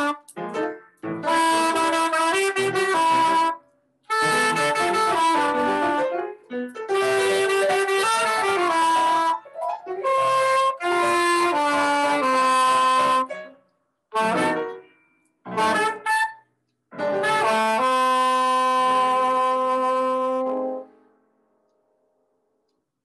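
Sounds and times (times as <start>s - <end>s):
soprano saxophone jazz line: 0.0s - 0.4s, 1.2s - 6.2s, 6.9s - 13.4s, 14.1s - 14.7s, 15.5s - 16.4s, 17.0s - 20.9s.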